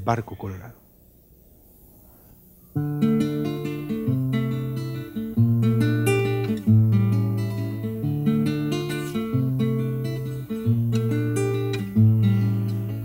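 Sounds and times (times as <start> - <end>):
classical guitar strumming chords: 2.7 - 13.0.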